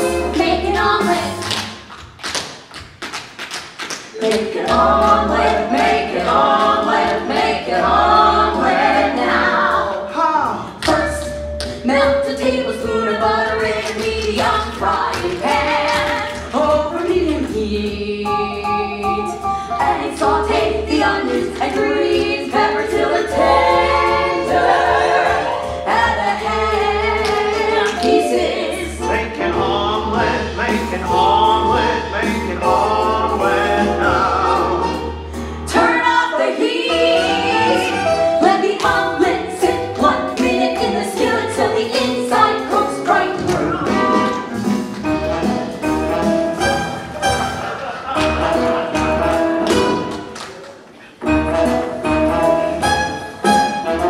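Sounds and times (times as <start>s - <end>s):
sharp tap dance taps: 1.5s - 4.1s
cast singing together: 4.2s - 10.2s, 11.8s - 19.2s, 19.8s - 44.6s
instrumental accompaniment: 4.2s - 35.9s, 36.7s - 50.5s, 51.2s - 54.0s
backing music with bass pulse: 10.8s - 35.9s.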